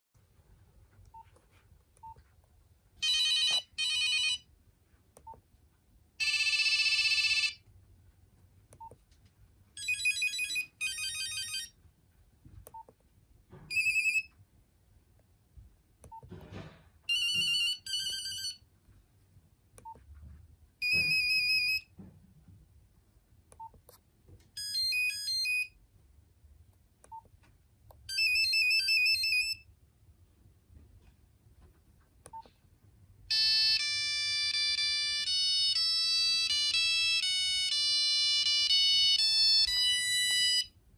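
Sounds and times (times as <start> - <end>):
phone ringtone beeping melodies: 3.0 - 4.4, 6.2 - 7.6, 9.8 - 11.7, 13.7 - 14.3, 17.1 - 18.6, 24.6 - 25.7, 28.1 - 29.7, 33.3 - 40.8.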